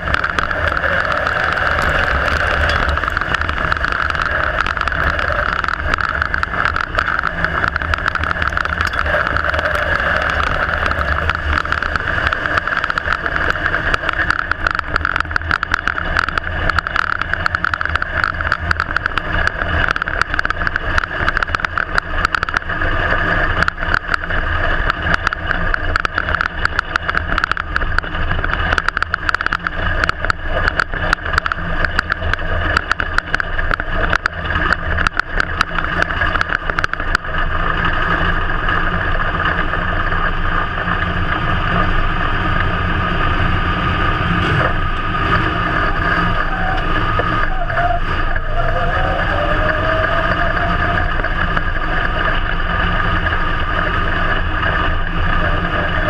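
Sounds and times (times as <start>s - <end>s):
short sharp ticks and knocks: 0.0s - 22.7s, 23.6s - 37.8s
race car engine running hard: 0.0s - 56.0s.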